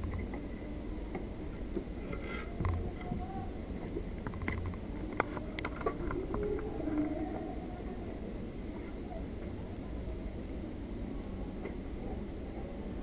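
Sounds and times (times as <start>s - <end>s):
small clicks and taps: 0.0s - 0.4s, 3.8s - 6.6s
low hum: 0.0s - 13.0s.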